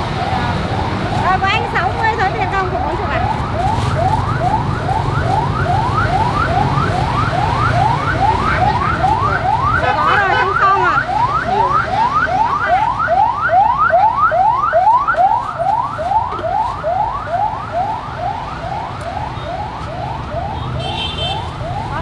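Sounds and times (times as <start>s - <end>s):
siren in yelp mode: 0.0s - 22.0s
street traffic rumble: 0.0s - 22.0s.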